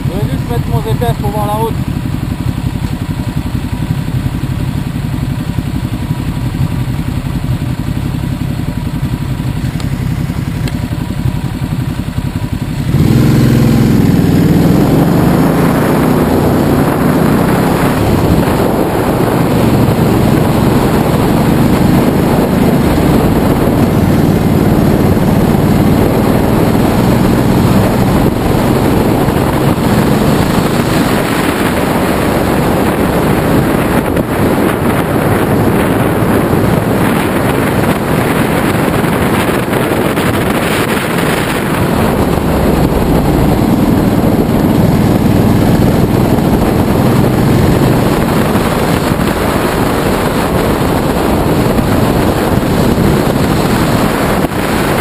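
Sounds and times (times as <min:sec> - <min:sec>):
motorcycle engines idling: 0:00.0 - 0:15.7
motorcycle engine revving: 0:00.0 - 0:55.0
wind rushing over microphone: 0:00.0 - 0:55.0.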